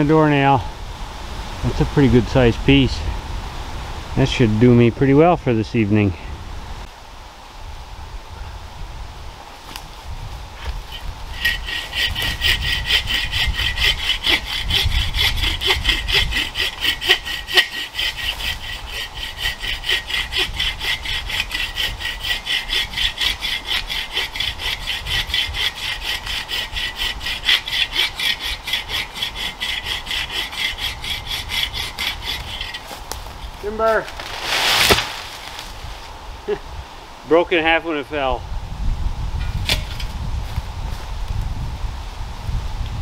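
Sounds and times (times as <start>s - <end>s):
bow saw rasping through wood: 10.6s - 35.6s.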